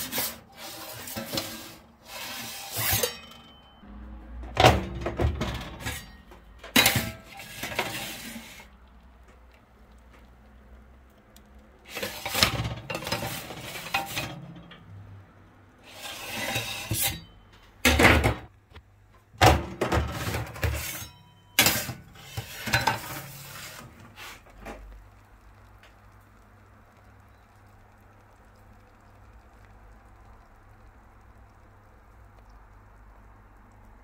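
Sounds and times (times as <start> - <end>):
dishes and utensils clattering: 0.0 - 3.8, 4.6 - 8.6, 11.9 - 14.9, 19.4 - 23.9.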